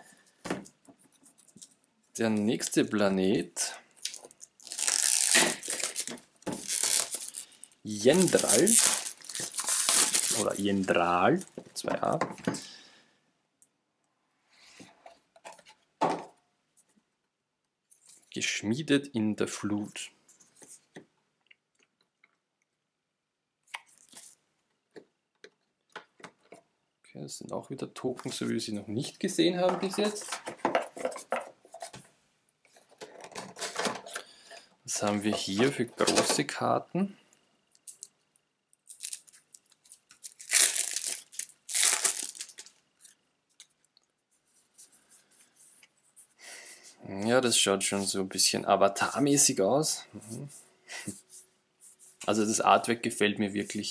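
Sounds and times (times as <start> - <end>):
shrink-wrap crinkling and tearing: 4.0 - 11.0, 38.8 - 43.7
paper and cardboard rustling: 29.6 - 32.0.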